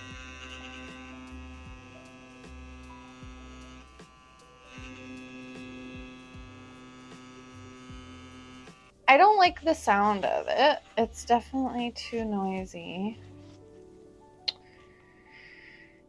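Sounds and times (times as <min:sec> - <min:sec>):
tattoo pen motor buzzing: 0:00.0 - 0:09.0, 0:09.6 - 0:11.5.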